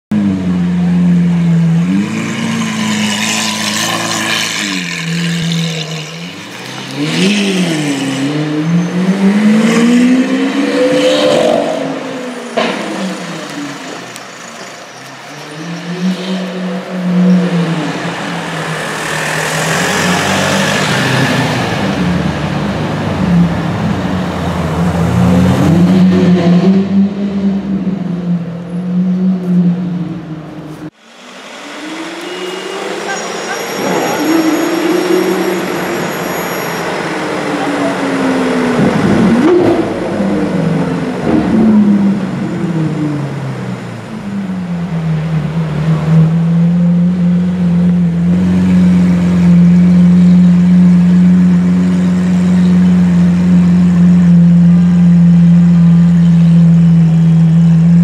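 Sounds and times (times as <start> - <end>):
car engine revving: 0.2 - 14.4, 15.0 - 58.0.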